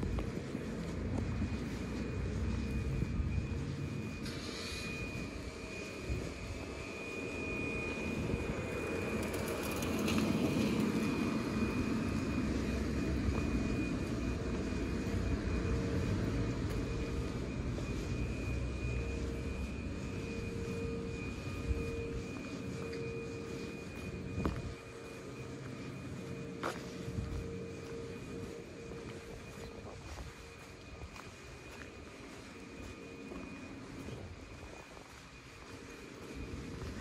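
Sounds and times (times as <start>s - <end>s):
motor traffic rumble: 0.0s - 37.0s.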